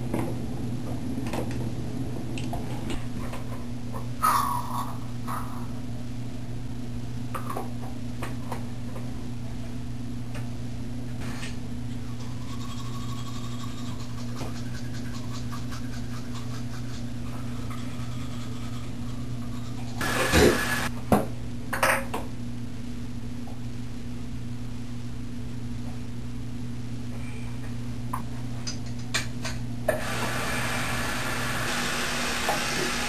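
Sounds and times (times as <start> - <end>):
low hum: 0.0 - 7.4
toothbrush scrubbing teeth: 12.2 - 20.0.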